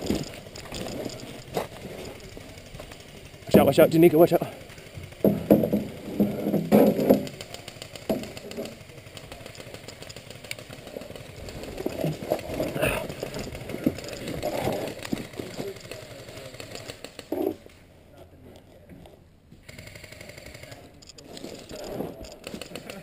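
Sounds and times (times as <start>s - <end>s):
gear jostling: 0.0s - 5.2s, 7.3s - 17.4s, 21.0s - 23.0s.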